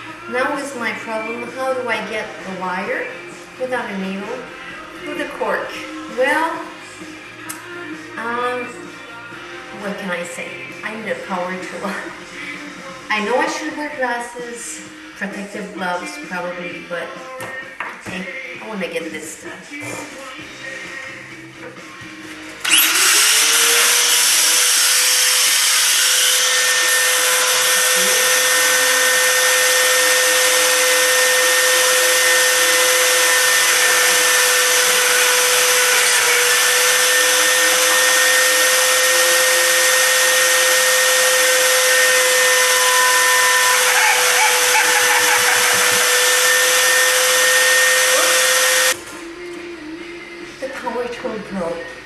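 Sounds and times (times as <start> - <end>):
rotary tool whining: 22.6 - 49.0.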